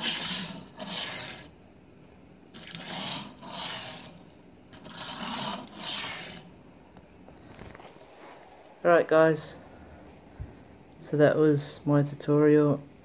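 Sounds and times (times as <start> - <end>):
rubbing and scraping: 0.0 - 1.5, 2.6 - 6.5.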